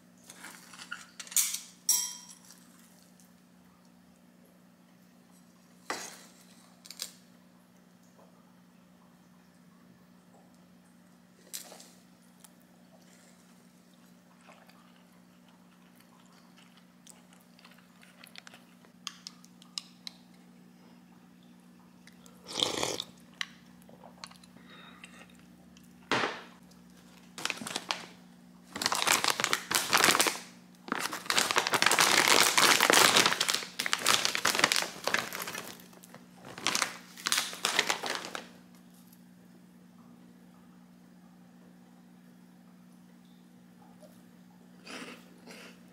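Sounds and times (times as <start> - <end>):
low steady hum: 0.0 - 45.9
plastic bag crinkling: 27.0 - 38.6.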